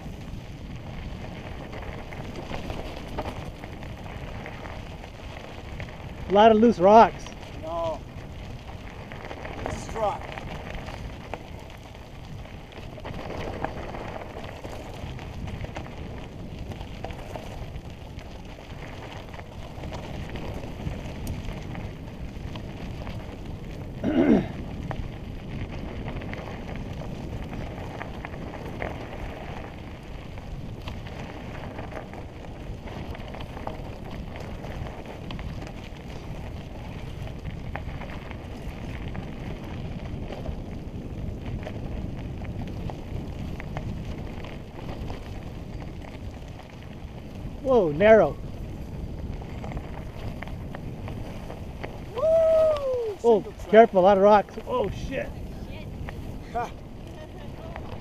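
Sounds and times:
bike rattling: 0.0 - 58.0
bike tyres rolling on gravel: 0.0 - 58.0.

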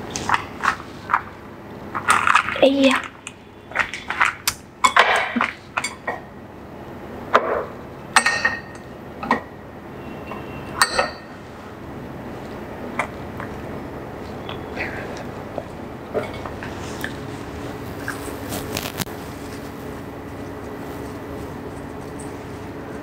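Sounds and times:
chopsticks clinking on ceramic plates: 10.8 - 11.3
soft handling rustles: 16.2 - 23.0.

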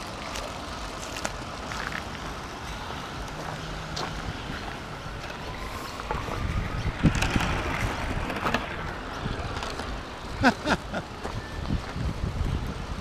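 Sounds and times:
wind on microphone: 2.6 - 13.0
model train wheels rumbling on track: 4.2 - 10.7
clicks over rail joints: 5.2 - 10.3.

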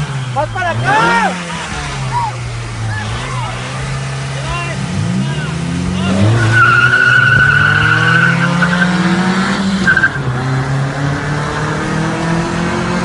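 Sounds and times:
car engines revving hard: 0.0 - 13.0
tyre squealing: 6.0 - 10.3.

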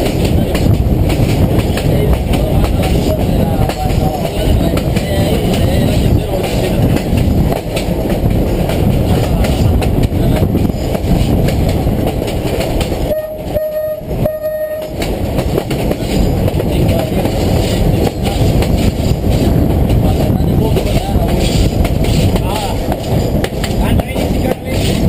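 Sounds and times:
electric train rumbling: 0.0 - 25.0
train horn blasts: 13.1 - 15.0.

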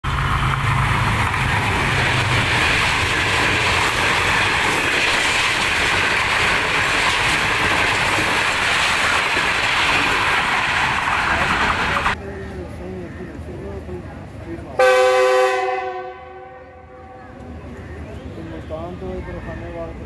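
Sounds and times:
train wheels on rails: 0.0 - 14.7
locomotive engine hum: 0.0 - 20.0.

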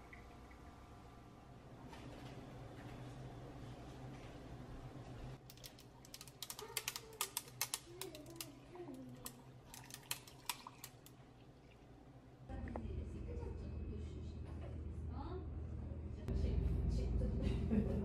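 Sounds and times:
ice clicking and cracking: 5.4 - 11.2.

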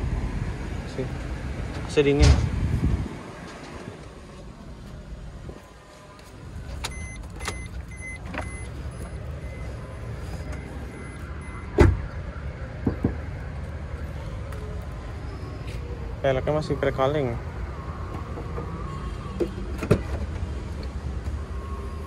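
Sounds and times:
faint electronic beeping: 6.8 - 12.5
car door thump: 11.7 - 12.0.

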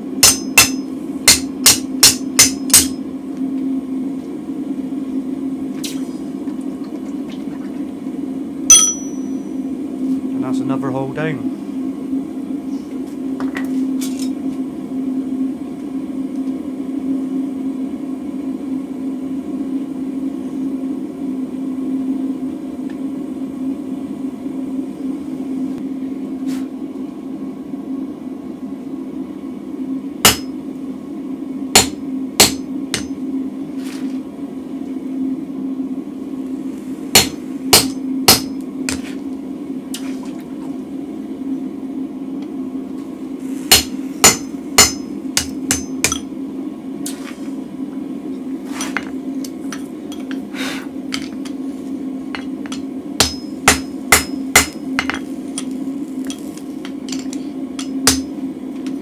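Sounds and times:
steady low hum: 0.0 - 59.0
hammer striking steel on anvil: 0.2 - 3.0, 8.7 - 9.5, 30.2 - 30.6, 31.8 - 33.2, 37.1 - 39.1, 43.7 - 46.3, 52.3 - 59.0.

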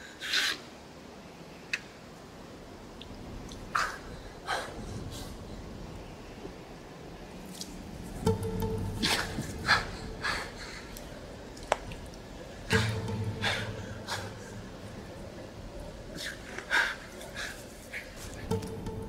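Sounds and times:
man breathing heavily: 9.1 - 11.4, 12.8 - 15.2.

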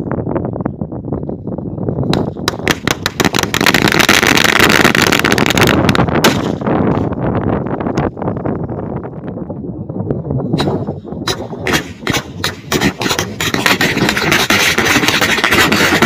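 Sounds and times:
firecrackers crackling: 2.2 - 7.1, 10.6 - 16.0.

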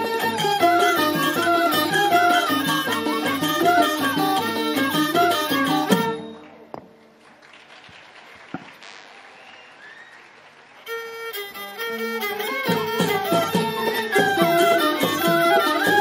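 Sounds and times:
folk music with fiddle: 0.0 - 6.4, 10.8 - 16.0
bowed string long notes: 10.9 - 16.0.

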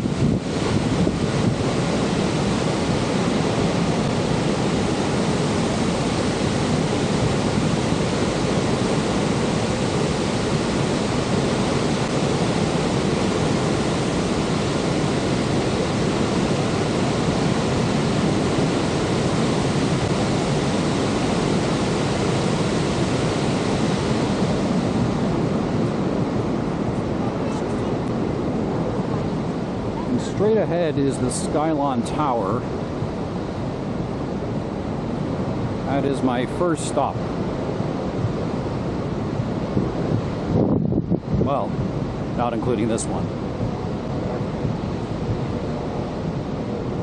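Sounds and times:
waterfall rushing: 0.0 - 32.5.

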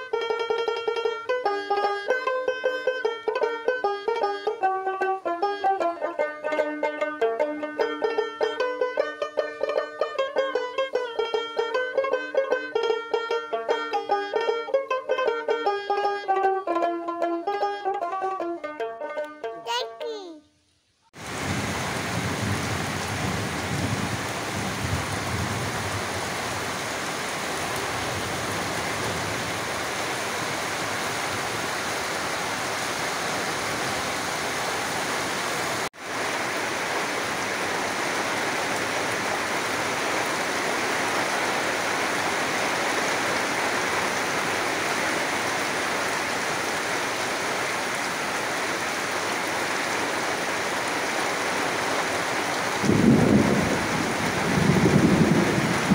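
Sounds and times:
heavy rain on tin roofs: 0.0 - 16.9, 21.2 - 55.9.

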